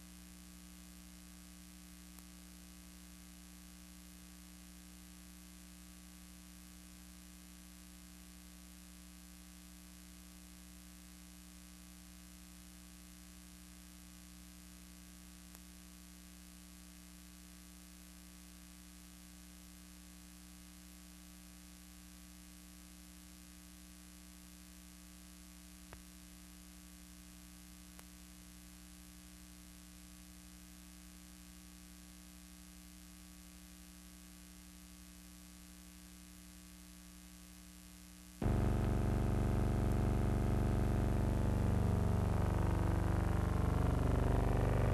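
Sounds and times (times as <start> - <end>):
mains hum: 0.0 - 44.9
low hiss: 38.4 - 44.9.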